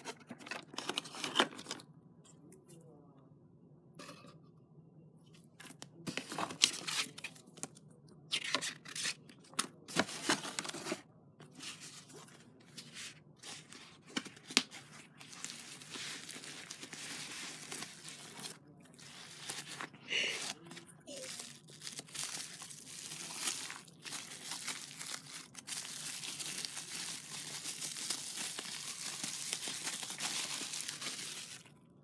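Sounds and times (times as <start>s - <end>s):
packaging tearing and crinkling: 14.1s - 19.9s, 20.5s - 31.7s.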